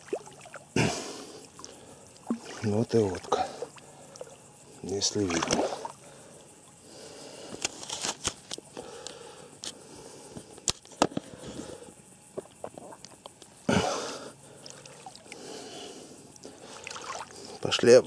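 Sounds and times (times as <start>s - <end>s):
water splashing and dripping: 1.6s - 4.3s, 16.7s - 17.4s.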